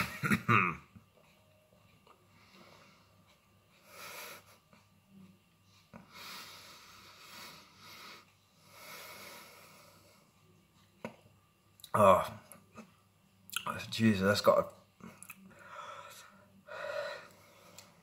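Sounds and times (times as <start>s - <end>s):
man breathing heavily: 2.3s - 4.8s, 5.9s - 10.3s, 15.5s - 18.0s.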